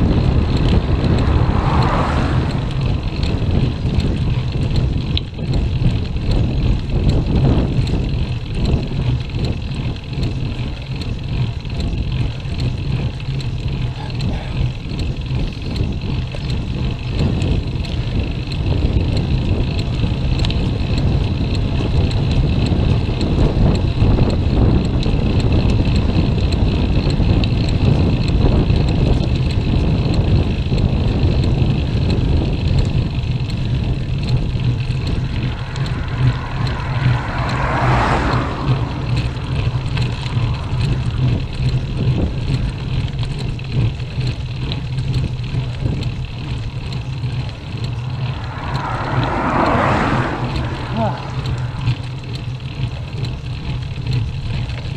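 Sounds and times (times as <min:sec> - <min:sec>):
bicycle road vibration: 0:00.0 - 0:54.9
wind rumble: 0:00.0 - 0:54.9.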